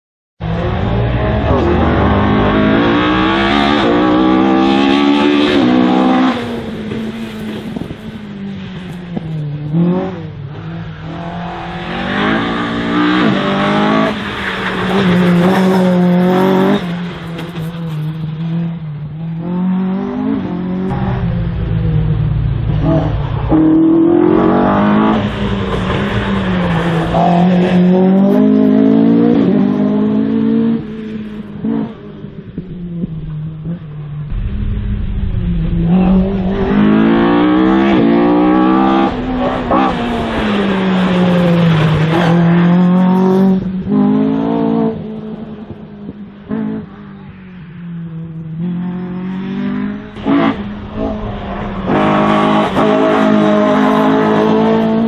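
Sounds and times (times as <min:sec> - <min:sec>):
race car engine revving: 0:00.4 - 0:08.1, 0:33.6 - 0:45.9, 0:48.6 - 0:55.0.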